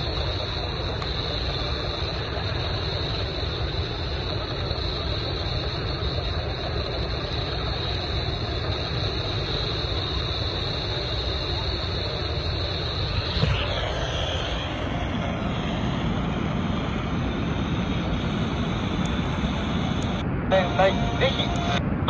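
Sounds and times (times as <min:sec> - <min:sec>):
shortwave radio static: 0:00.0 - 0:22.0.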